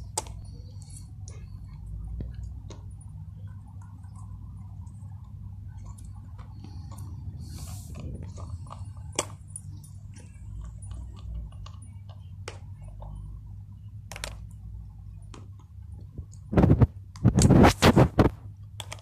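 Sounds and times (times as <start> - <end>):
dog gnawing plastic chew toy: 5.8 - 13.2.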